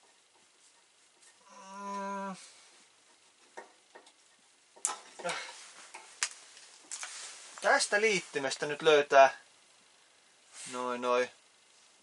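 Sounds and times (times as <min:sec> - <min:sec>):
man humming: 0:01.4 - 0:02.6.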